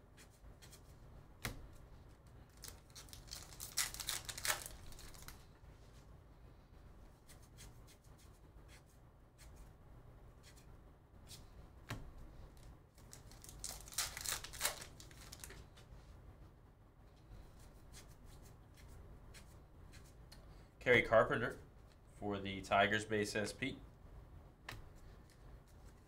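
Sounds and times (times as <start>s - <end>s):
wrapper tearing and crinkling: 2.5s - 5.4s, 13.0s - 15.6s.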